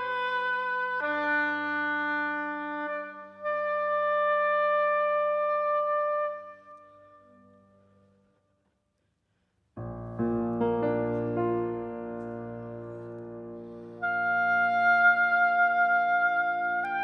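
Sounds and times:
soft piano: 9.8 - 17.0
oboe sustained notes: 10.3 - 17.0.

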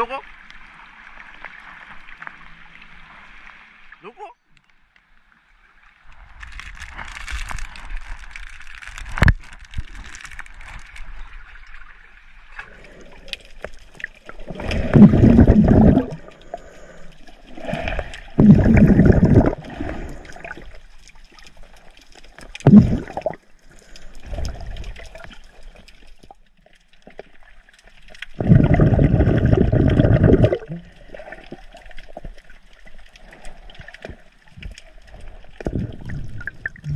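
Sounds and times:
water gurgling underwater: 12.6 - 21.4, 22.4 - 23.6, 24.2 - 26.3, 28.0 - 36.9.

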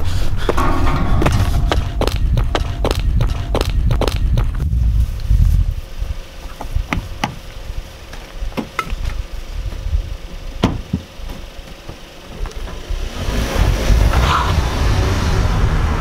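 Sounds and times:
car door shutting: 10.6 - 11.1
clicks and knocks getting into car: 10.6 - 12.8.

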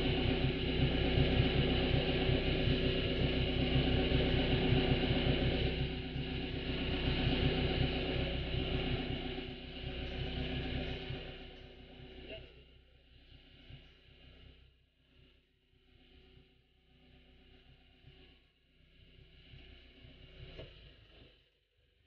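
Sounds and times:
motorboat engine idling: 0.0 - 14.2.

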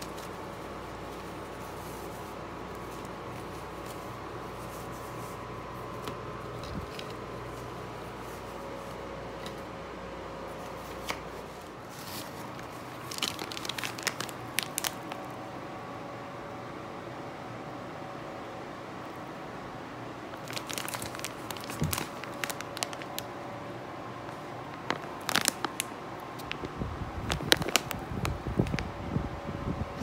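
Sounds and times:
plastic bag crinkling: 0.0 - 9.1, 10.5 - 15.4, 20.3 - 23.3, 24.3 - 28.8
cloth rustling: 0.0 - 9.7, 10.4 - 15.2
steady background hum: 0.0 - 30.0.

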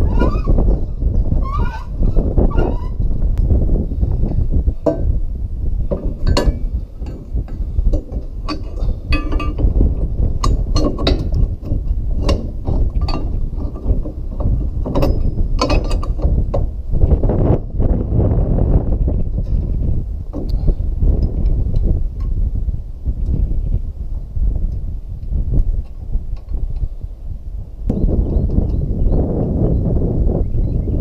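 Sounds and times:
wind rumble on microphone: 0.0 - 31.0
metal clinks and scrapes: 6.0 - 16.3.

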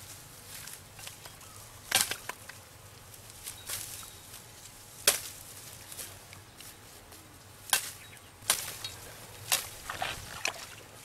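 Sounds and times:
hands slapping muddy water: 9.5 - 11.0.

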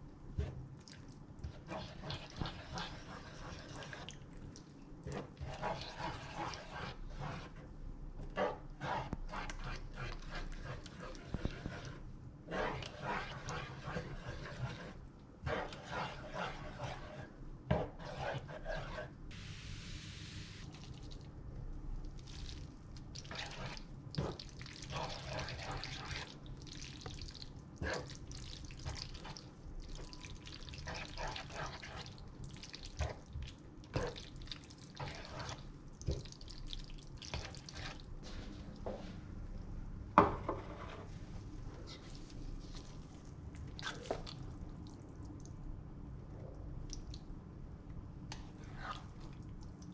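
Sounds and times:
spatula scraping a metal pan: 5.4 - 7.6, 8.4 - 19.1, 40.4 - 41.1
wet squelching: 22.2 - 38.2, 41.9 - 45.5.

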